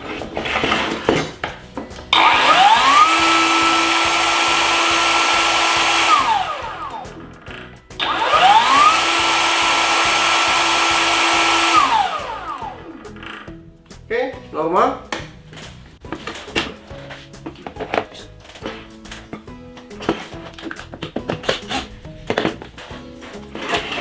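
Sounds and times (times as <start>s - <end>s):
electric motor whining: 2.1s - 13.5s.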